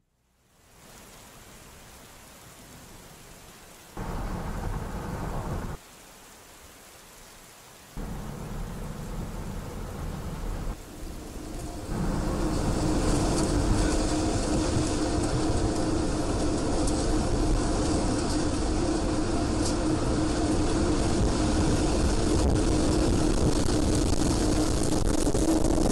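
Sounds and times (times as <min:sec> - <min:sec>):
heavy rain on a street: 0:00.5 - 0:25.9
thunder rolling: 0:04.0 - 0:05.8, 0:08.0 - 0:25.9.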